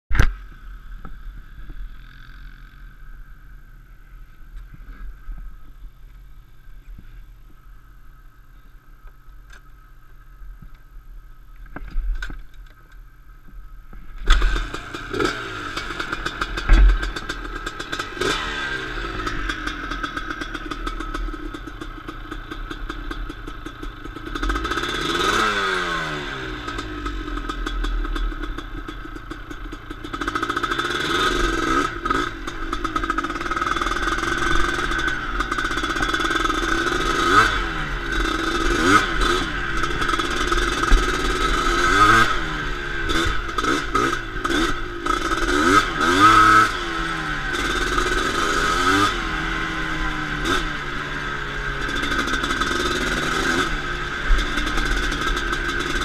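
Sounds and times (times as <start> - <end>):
quad engine idling and revving: 0.2 - 7.5, 14.2 - 56.0
engine clattering knocks: 16.6 - 17.4.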